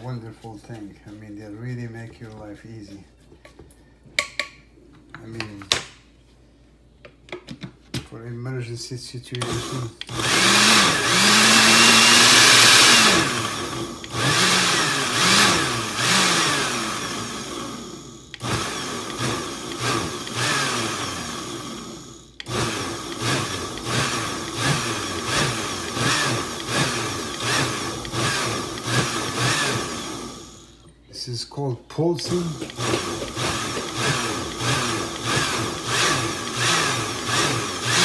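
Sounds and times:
blender motor pulsing: 9.4 - 30.8, 32.2 - 38.0.

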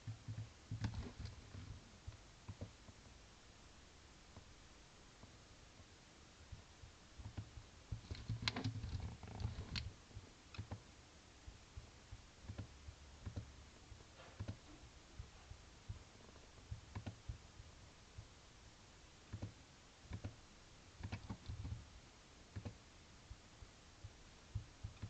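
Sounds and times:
mouse clicks: 10.5 - 10.8, 16.9 - 17.4.

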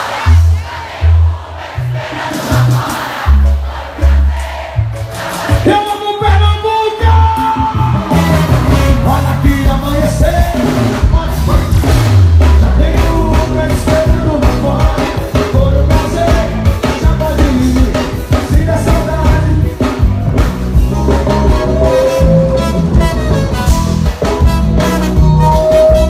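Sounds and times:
live band music: 0.0 - 26.0
person singing: 12.6 - 20.1.

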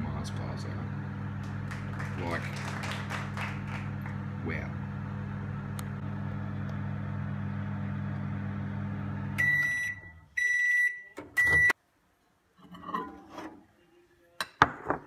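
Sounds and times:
microwave oven humming: 0.0 - 10.6.

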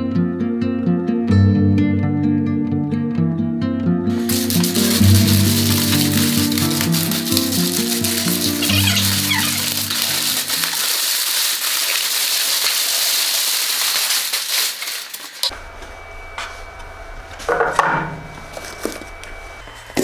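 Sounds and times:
music: 0.0 - 10.7
plastic wrap crinkling: 4.2 - 15.5
low workshop hum: 15.5 - 20.0.

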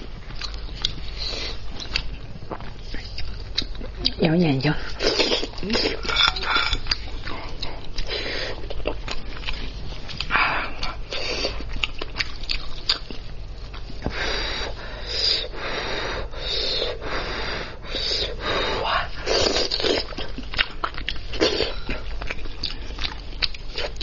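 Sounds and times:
steady low hum: 0.0 - 24.0
wet chewing and lip smacks: 0.2 - 4.2.

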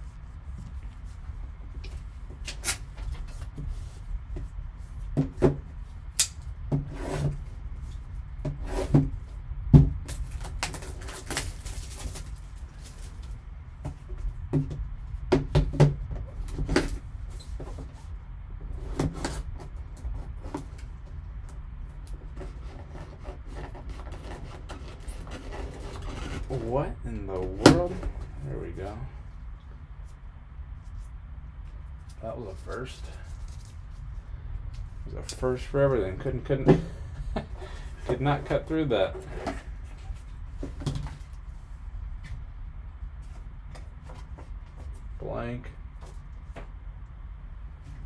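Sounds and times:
steady low hum: 0.0 - 48.0
scraping rustle: 10.2 - 14.3, 22.2 - 29.2, 30.0 - 36.6.

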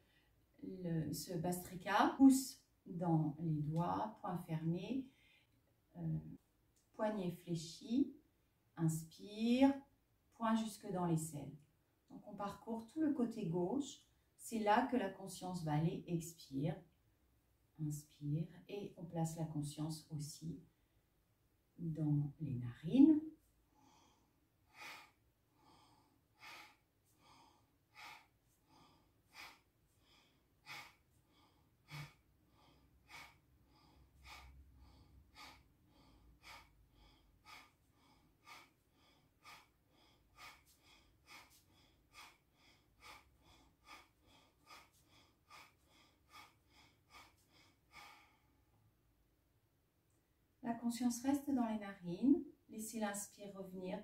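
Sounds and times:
woman breathing forcefully through nose: 23.7 - 48.7.

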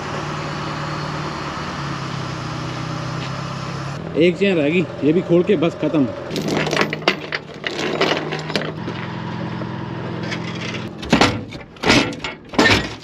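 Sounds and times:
engine running: 0.0 - 12.4
chain rattling: 6.3 - 8.8.

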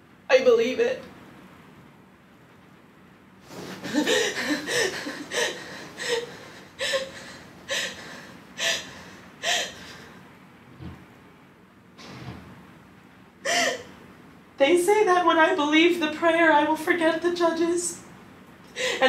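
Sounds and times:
woman crying with gasping sobs: 3.8 - 10.0, 13.4 - 13.9, 18.7 - 19.0.

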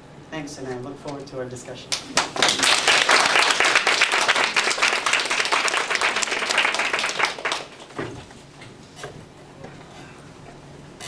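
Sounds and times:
audience applauding: 1.9 - 8.2.

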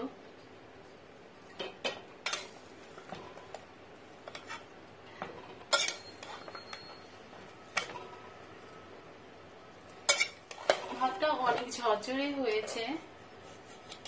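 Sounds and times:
spoon scraping metal pot: 4.3 - 4.7.

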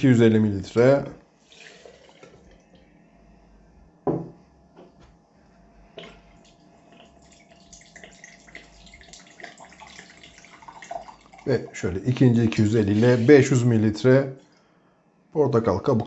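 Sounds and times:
liquid pouring into a glass jar: 0.6 - 2.8, 6.0 - 14.6
liquid trickling from a bottle: 0.6 - 2.8, 6.0 - 11.8, 12.5 - 13.6
cup knocking on a table: 4.0 - 5.0.

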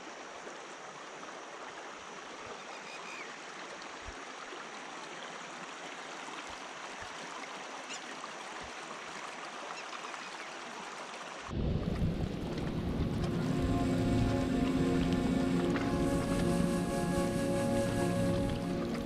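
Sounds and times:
water trickling over rock: 3.4 - 19.0.

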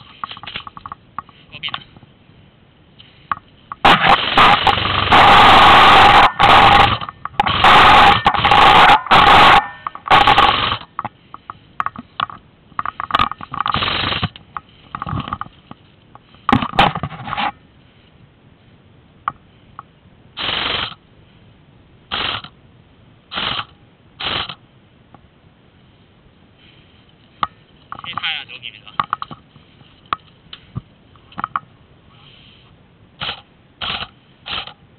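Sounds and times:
airsoft gun firing bursts: 3.8 - 10.8, 13.7 - 14.3, 20.4 - 21.0, 22.1 - 22.5, 23.3 - 24.6, 33.2 - 34.7
gearbox whine: 3.8 - 11.0.

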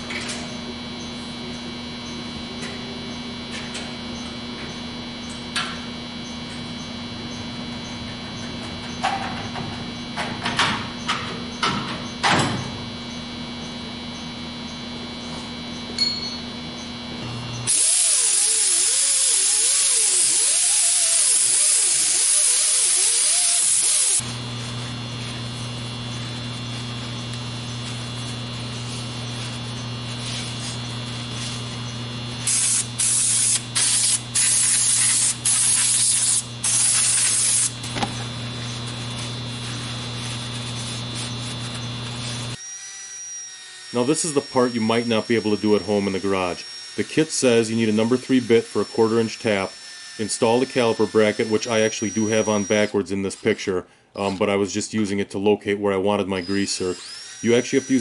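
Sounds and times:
shop hum: 0.0 - 58.0
aerosol spray can hissing: 17.7 - 24.2, 32.4 - 38.2.

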